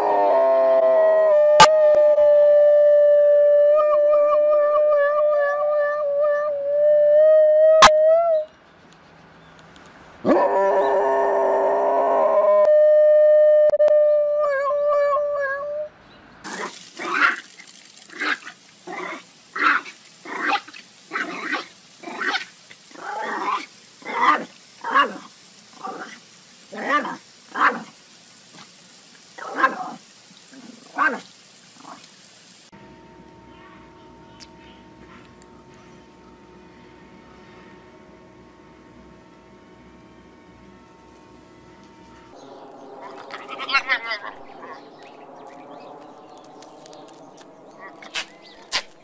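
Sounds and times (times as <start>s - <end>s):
dog howling: 0.0s - 8.5s, 10.3s - 15.9s, 42.7s - 44.9s
steady hiss: 16.5s - 49.0s
dog barking: 30.9s - 31.2s.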